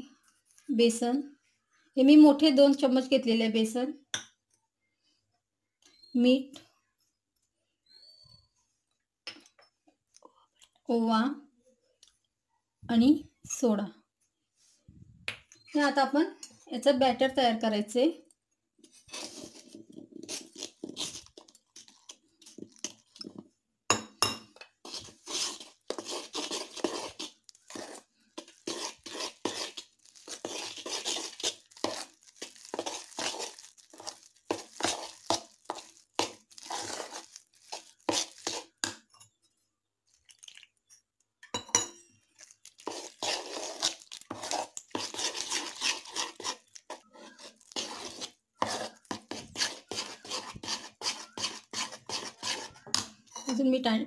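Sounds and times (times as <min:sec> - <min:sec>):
spoon stirring batter in bowl: 0:18.8 - 0:53.7
spoon clinking against metal bowl: 0:41.4 - 0:42.1.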